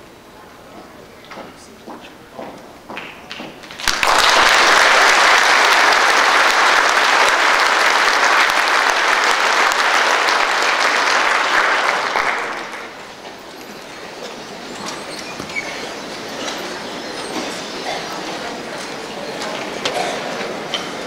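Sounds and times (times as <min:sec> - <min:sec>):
large audience applauding: 0:03.0 - 0:18.7.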